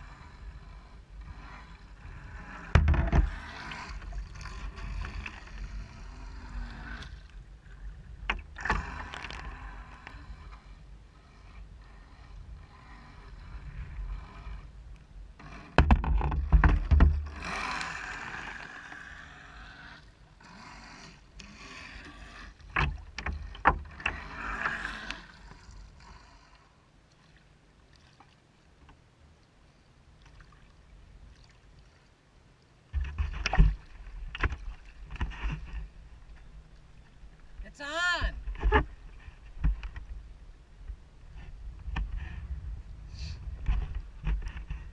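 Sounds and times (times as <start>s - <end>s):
water splashing against boat hull: 32.9s - 40.2s.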